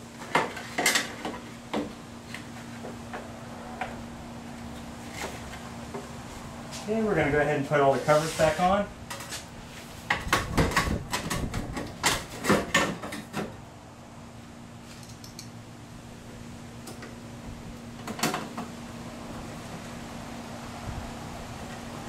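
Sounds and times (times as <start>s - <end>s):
faint steady machine hum: 0.0s - 22.0s
metal panel clicking and rattling: 10.2s - 13.5s.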